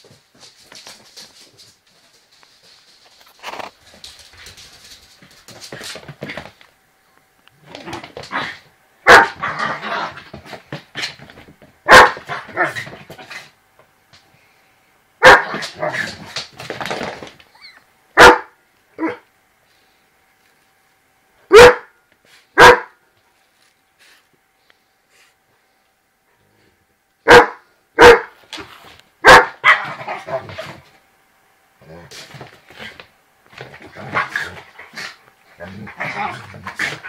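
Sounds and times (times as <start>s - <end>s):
dog barking: 9.0s - 9.4s, 11.9s - 12.7s, 15.2s - 15.6s, 18.2s - 19.2s, 21.5s - 22.0s, 22.6s - 23.0s, 27.2s - 28.4s, 29.2s - 30.0s.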